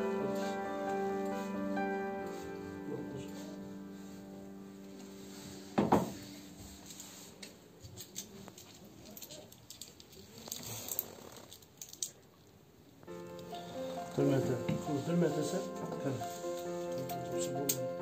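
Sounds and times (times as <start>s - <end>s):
handling clicks and rustles: 6.9s - 12.3s.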